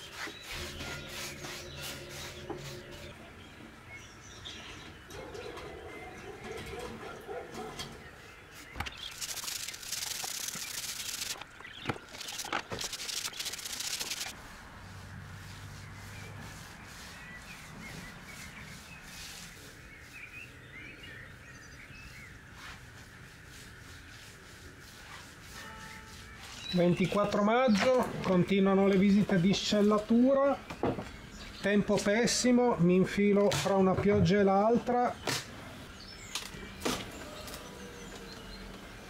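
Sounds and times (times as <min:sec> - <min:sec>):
hand tool scraping plastered wall: 0:00.0 - 0:03.2, 0:14.2 - 0:20.2, 0:23.5 - 0:28.1
birds chirping: 0:00.0 - 0:14.4, 0:15.5 - 0:39.0.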